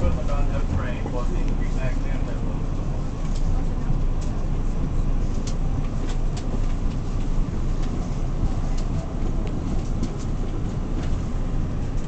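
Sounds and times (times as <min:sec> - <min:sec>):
subway car rumble: 0:00.0 - 0:12.0.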